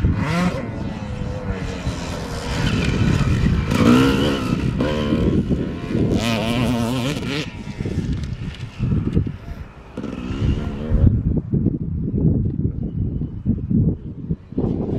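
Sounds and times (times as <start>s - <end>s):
dirt bike engine revving: 0.0s - 9.1s, 9.9s - 11.1s
wind rumble on microphone: 0.0s - 14.9s.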